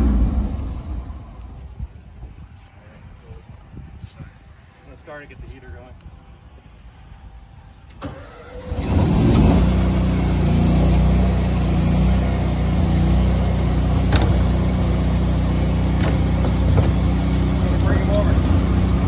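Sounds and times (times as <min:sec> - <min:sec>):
engine starting and running: 0:00.0 - 0:01.6, 0:07.8 - 0:19.0.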